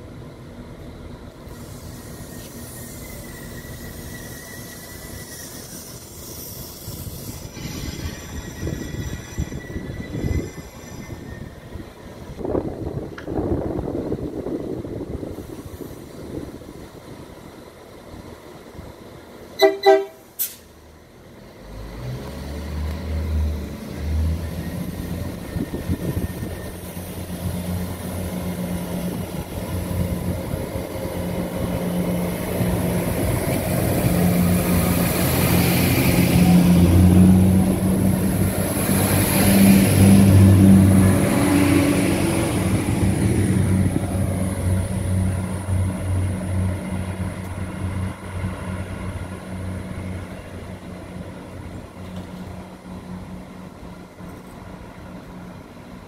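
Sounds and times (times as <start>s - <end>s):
diesel railcar engines and wheels: 0.0s - 56.0s
train horn blasts: 19.6s - 20.4s.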